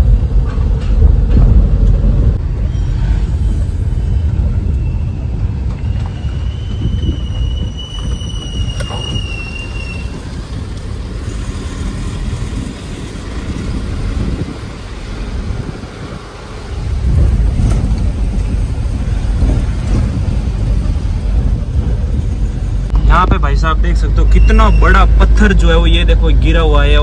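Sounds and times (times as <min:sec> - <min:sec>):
car engine and road rumble: 0:00.0 - 0:27.0
thin high whistle: 0:02.6 - 0:10.2.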